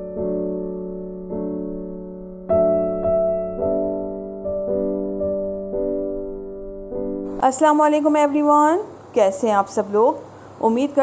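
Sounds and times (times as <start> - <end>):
soft keyboard chords: 0.0 - 8.4.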